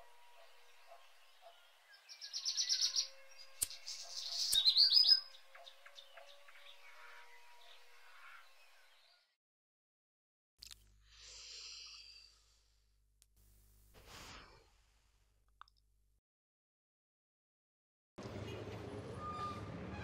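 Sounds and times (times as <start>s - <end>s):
birds chirping: 0.2s - 9.2s.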